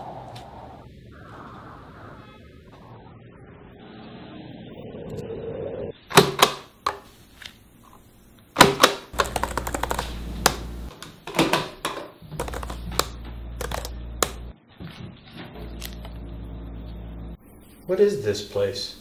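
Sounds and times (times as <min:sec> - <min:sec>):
laptop keyboard typing: 0:08.6 - 0:11.4, 0:12.4 - 0:14.4
low hum: 0:09.2 - 0:11.0, 0:12.2 - 0:17.8.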